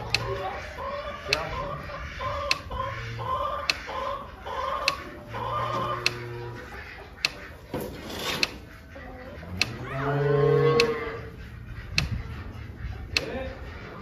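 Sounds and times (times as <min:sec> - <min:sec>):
cow mooing: 0:05.3 - 0:06.7, 0:09.4 - 0:11.4.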